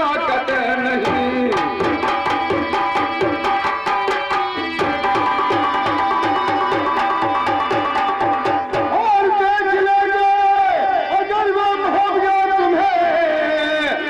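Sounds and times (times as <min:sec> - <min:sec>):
hand drums fast rhythm: 0:00.9 - 0:09.3.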